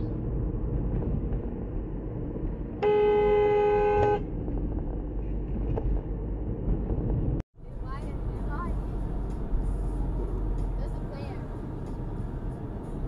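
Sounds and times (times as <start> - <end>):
car driving hum: 0.0 - 13.0
car horn blast: 2.8 - 4.3.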